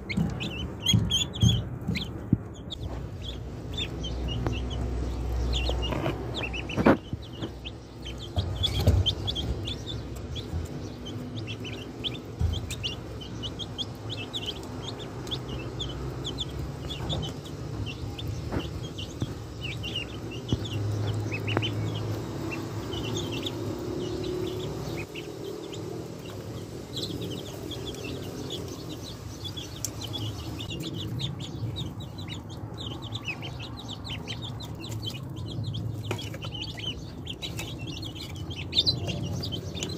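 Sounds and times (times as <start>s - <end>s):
sharp knocks: 0.0s - 2.5s
ducklings peeping: 0.0s - 39.9s.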